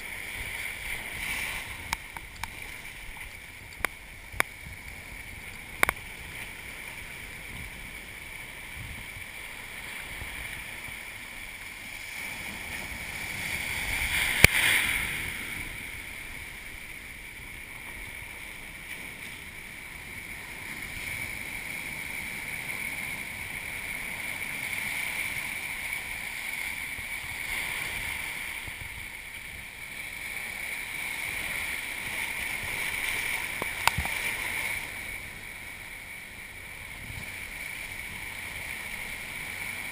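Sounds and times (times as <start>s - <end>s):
surf breaking: 0.0s - 22.5s.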